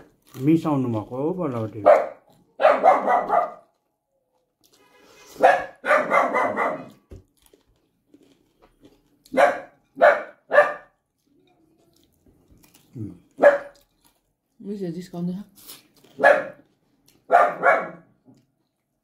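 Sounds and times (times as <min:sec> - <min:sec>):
dog barking: 0:01.8 - 0:03.8, 0:05.3 - 0:07.0, 0:09.3 - 0:11.0, 0:13.4 - 0:13.8, 0:16.2 - 0:18.2.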